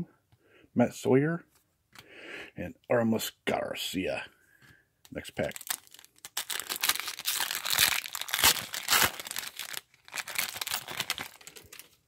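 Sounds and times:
foil wrapper tearing and crinkling: 5.5s - 12.0s.

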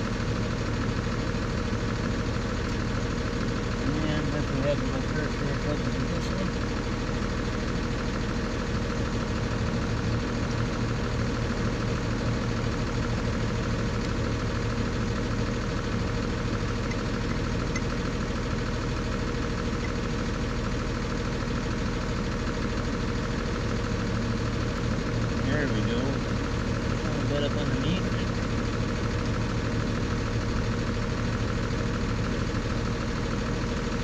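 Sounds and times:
engine idling: 0.0s - 34.0s.

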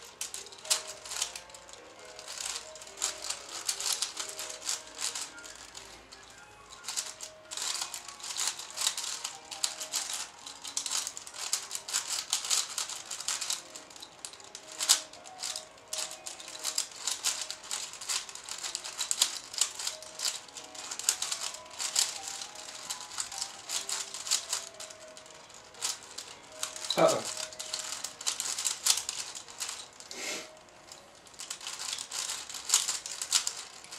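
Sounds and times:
puzzle cube turns clicking: 0.0s - 33.9s.

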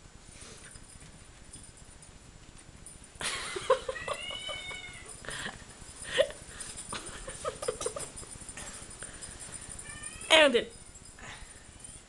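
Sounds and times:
kitten meowing: 4.0s - 5.1s.

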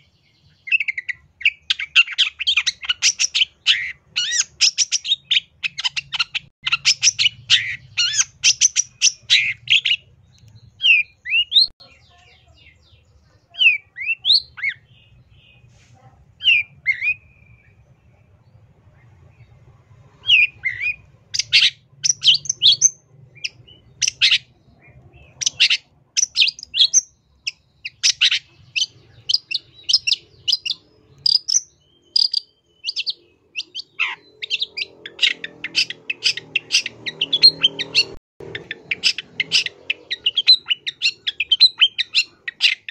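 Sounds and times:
bird singing rapid notes: 0.0s - 15.7s, 19.4s - 42.9s.

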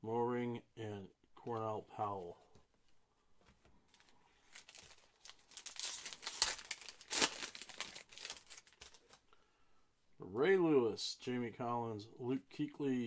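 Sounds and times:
foil pack tearing and crinkling: 4.4s - 9.2s.

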